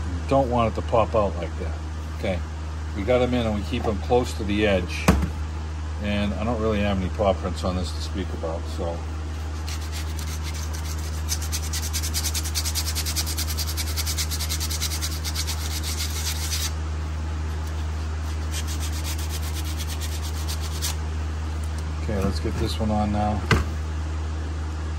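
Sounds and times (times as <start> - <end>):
sandpaper rubbing: 9.4 - 16.8, 17.6 - 21.0.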